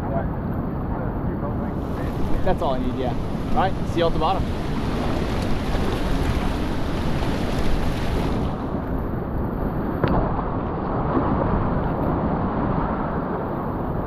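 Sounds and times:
wind on microphone: 0:00.0 - 0:14.0
whitewater rushing: 0:01.7 - 0:09.3.

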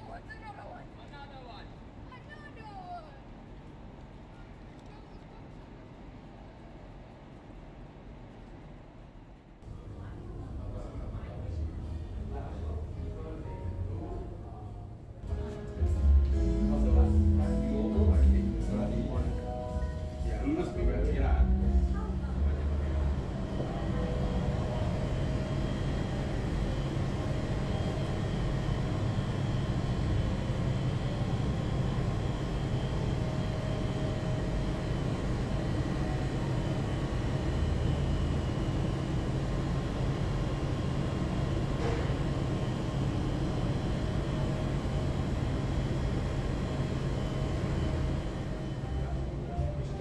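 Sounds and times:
ventilation humming: 0:00.0 - 0:50.0.

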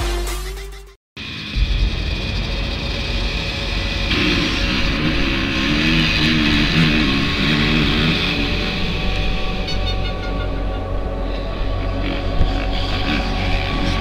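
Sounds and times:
motocross bikes accelerating: 0:03.7 - 0:14.0.

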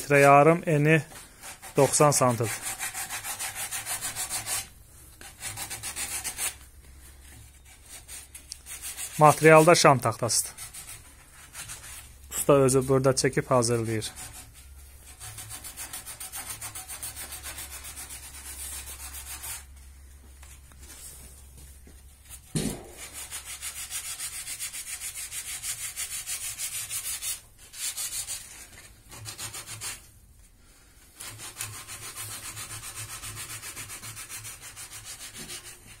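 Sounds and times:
sandpaper rubbing on wood: 0:00.0 - 0:06.6, 0:07.6 - 0:12.2, 0:12.8 - 0:19.7, 0:22.3 - 0:30.1, 0:31.2 - 0:36.0
knock: 0:22.6 - 0:23.0.

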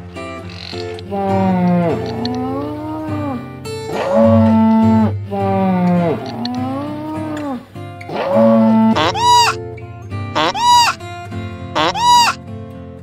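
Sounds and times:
cow lowing: 0:00.6 - 0:09.6, 0:10.4 - 0:11.0, 0:11.8 - 0:12.4
low background drone: 0:01.1 - 0:09.6.

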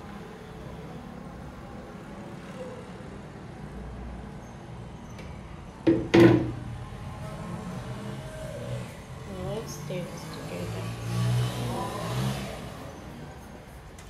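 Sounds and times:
blender jug knocked on hard surface: 0:05.9 - 0:06.6.

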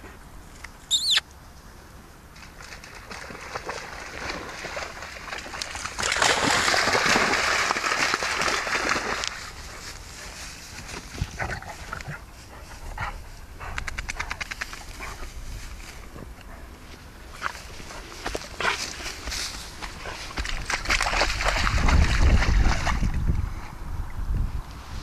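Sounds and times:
dogs rustling through grass: 0:02.4 - 0:13.4, 0:14.5 - 0:22.1
paw patter: 0:09.2 - 0:21.8
dog panting: 0:12.4 - 0:15.2.

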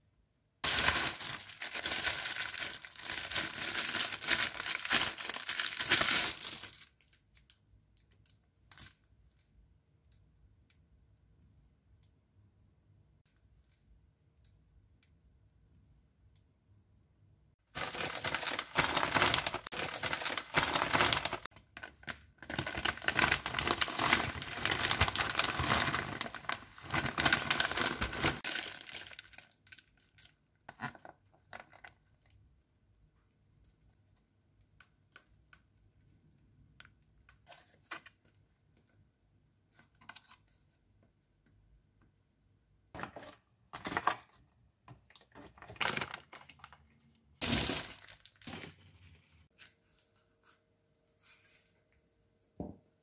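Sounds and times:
plastic bags crinkling: 0:00.6 - 0:07.4, 0:17.7 - 0:30.3, 0:45.1 - 0:49.5.

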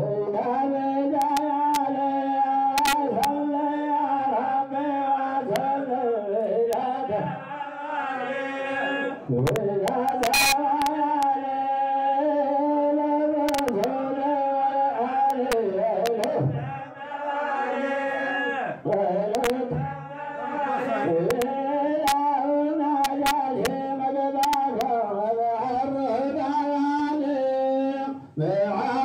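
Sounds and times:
men chanting in unison: 0:00.0 - 0:29.0
sharp clicks: 0:01.2 - 0:01.8, 0:02.8 - 0:03.0, 0:09.5 - 0:11.3, 0:13.5 - 0:13.9, 0:15.3 - 0:16.4, 0:18.9 - 0:19.6, 0:23.1 - 0:23.8, 0:24.4 - 0:24.9.

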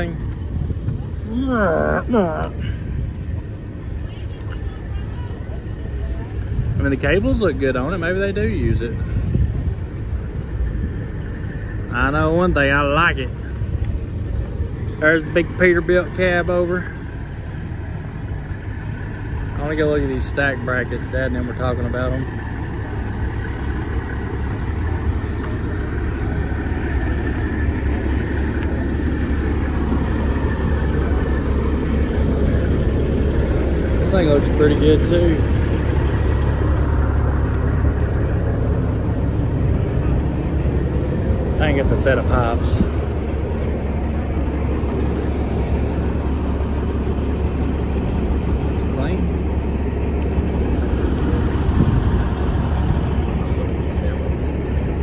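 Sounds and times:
diesel truck engine idling: 0:00.0 - 0:55.0.

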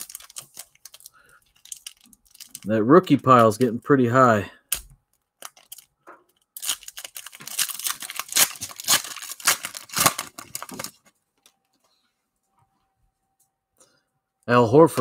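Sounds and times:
plastic wrapper tearing and crinkling: 0:00.0 - 0:02.7, 0:05.4 - 0:11.1.

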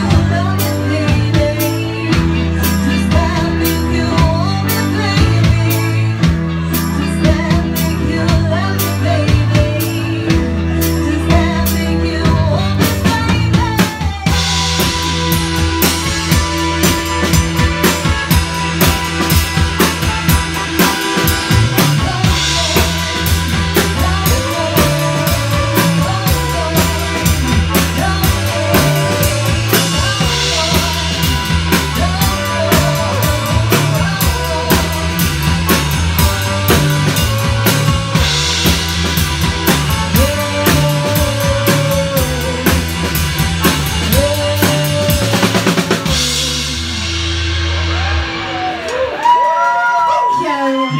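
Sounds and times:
woman singing: 0:00.0 - 0:47.1, 0:50.3 - 0:50.9
rock band playing: 0:00.0 - 0:50.9
fast drum roll: 0:13.1 - 0:49.1.

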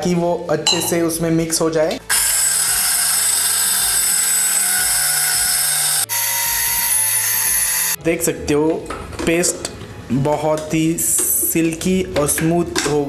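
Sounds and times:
mixer grinder grinding paste: 0:02.1 - 0:08.0.

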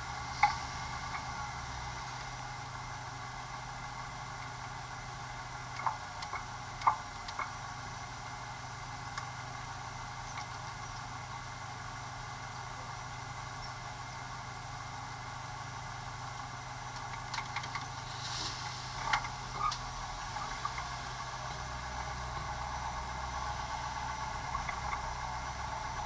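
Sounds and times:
vehicle engine idling: 0:00.0 - 0:26.0
sharp clicks and knocks: 0:05.8 - 0:07.6, 0:17.0 - 0:17.9, 0:19.0 - 0:19.9.

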